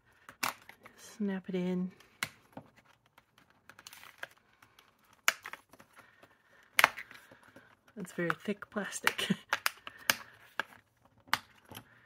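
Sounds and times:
plastic snaps: 4.7 - 5.8, 8.3 - 11.8
plastic clicks: 6.6 - 12.0.

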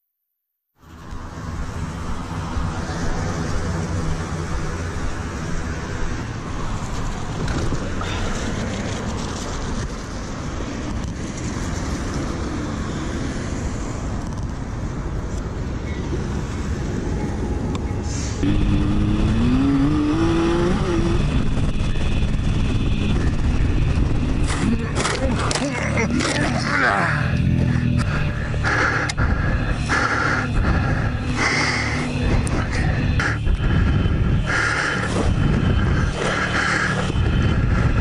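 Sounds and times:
wind and road rumble: 0.8 - 38.0
motorcycle engine accelerating: 18.4 - 38.0.

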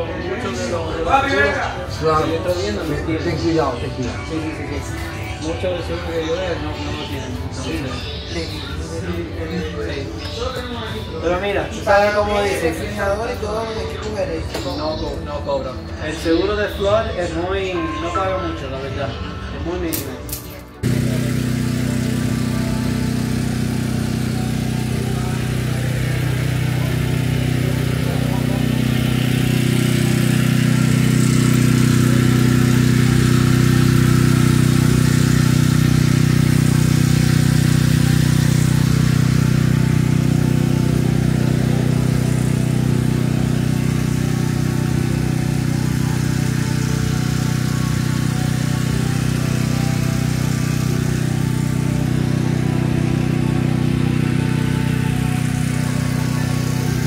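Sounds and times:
motor humming steadily: 20.8 - 57.0.

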